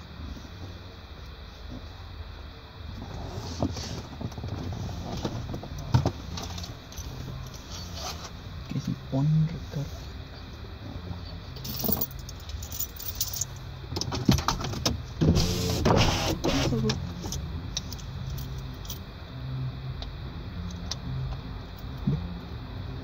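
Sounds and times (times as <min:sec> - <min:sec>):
clicks and rattles in a car: 0:11.6 - 0:18.0.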